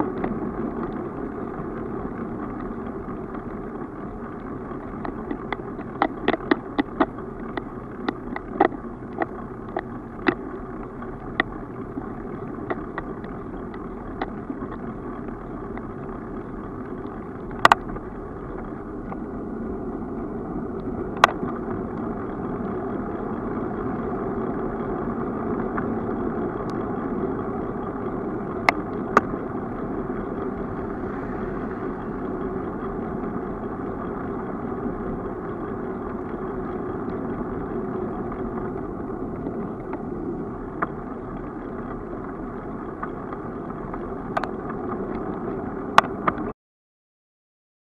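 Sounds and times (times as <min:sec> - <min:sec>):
bicycle rolling on asphalt: 0:00.0 - 0:46.5
sharp clicks and knocks: 0:04.8 - 0:10.5, 0:17.0 - 0:19.2.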